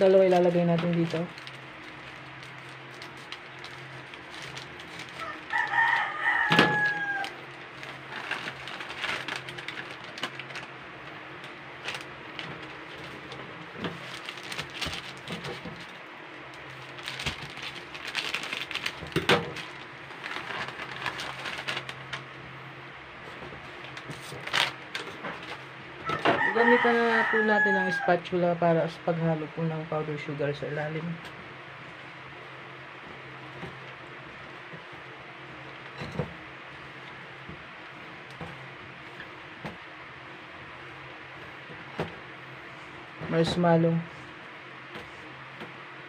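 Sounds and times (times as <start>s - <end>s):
plastic rustling: 0.0s - 22.5s, 23.2s - 28.0s
rooster crowing: 5.2s - 7.5s, 26.0s - 28.3s
scissors snipping plastic pack: 13.9s - 22.2s.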